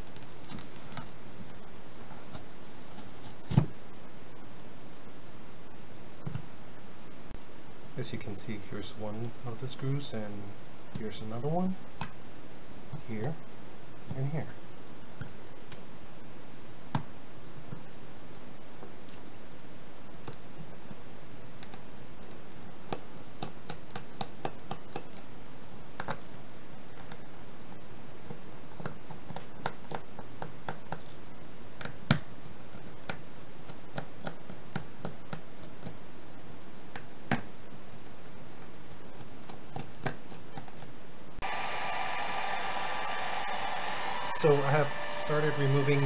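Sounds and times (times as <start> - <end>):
small clicks and scratches: 26.0 - 26.3, 28.2 - 36.0, 38.6 - 40.9.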